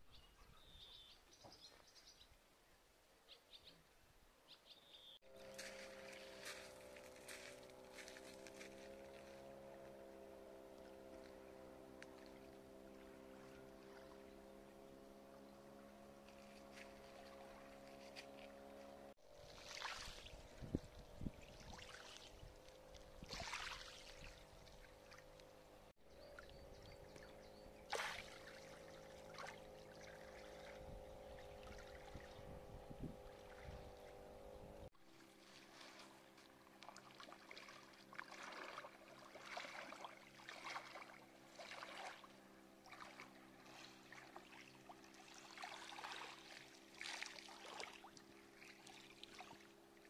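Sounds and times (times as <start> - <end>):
faint low hum: 5.3 - 49.7
water splashing at shore: 19.3 - 25.5, 27.8 - 32.4, 35.1 - 50.0.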